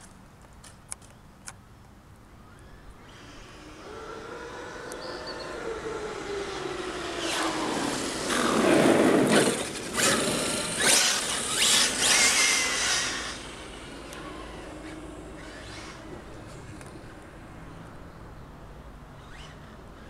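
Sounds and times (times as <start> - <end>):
toy car motor whine: 2.6 - 17.2
tyres rushing on asphalt: 3.1 - 20.0.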